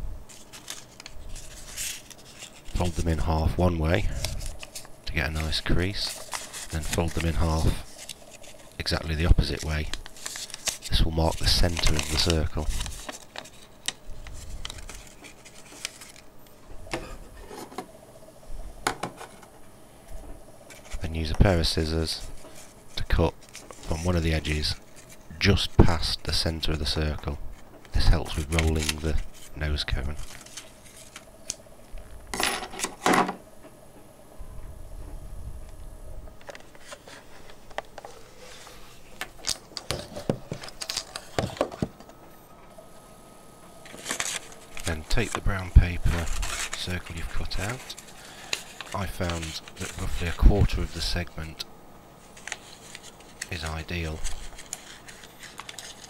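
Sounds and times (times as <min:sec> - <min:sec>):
small objects and paper clicking: 0:00.3 - 0:03.0, 0:04.2 - 0:16.3, 0:27.8 - 0:29.2, 0:52.3 - 0:56.0
paper crackling and rustling: 0:00.3 - 0:16.3, 0:20.6 - 0:31.6, 0:36.4 - 0:42.0, 0:43.8 - 0:51.4, 0:52.2 - 0:56.0.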